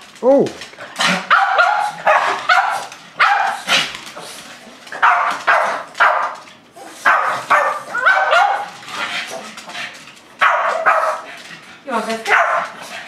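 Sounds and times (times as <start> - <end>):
dogs barking: 1.0 - 4.0, 4.9 - 9.8, 10.4 - 11.3, 12.2 - 12.9.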